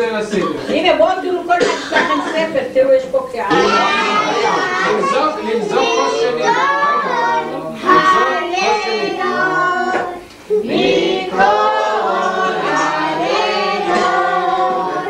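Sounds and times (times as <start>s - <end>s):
group of voices singing: 3.5s - 15.0s.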